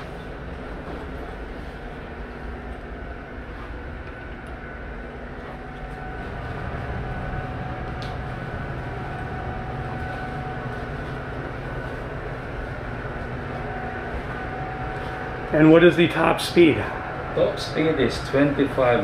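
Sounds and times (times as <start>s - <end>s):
faint steady whines: 0.0s - 19.0s
low machinery hum: 0.0s - 19.0s.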